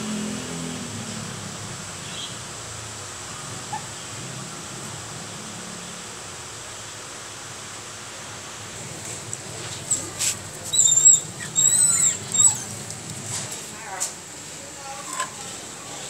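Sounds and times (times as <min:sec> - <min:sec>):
puppy whining: 0:03.7 - 0:03.9, 0:09.8 - 0:13.2.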